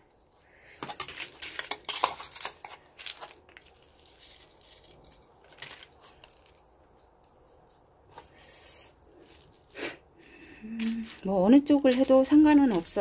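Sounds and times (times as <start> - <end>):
potting soil scraping: 0.8 - 13.0
plastic container rustling: 10.3 - 13.0.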